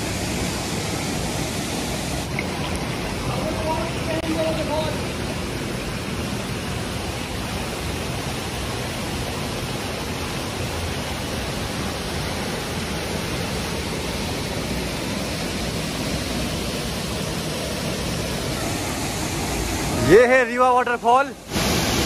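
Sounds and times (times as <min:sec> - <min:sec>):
stream running over stones: 0:00.0 - 0:22.0
waterfall plunging into pool: 0:00.0 - 0:22.0.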